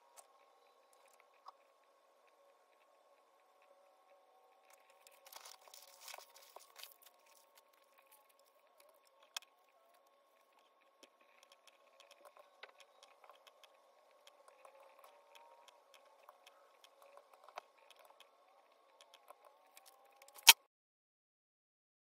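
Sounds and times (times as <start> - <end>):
faint steady hum: 0.0 - 20.6
sharp click: 20.2 - 20.6.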